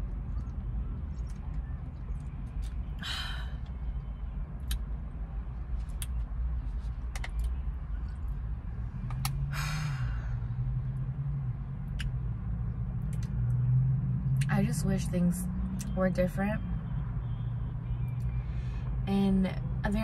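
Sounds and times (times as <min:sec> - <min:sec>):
breathy sigh: 0:03.0 - 0:03.6, 0:09.5 - 0:10.4.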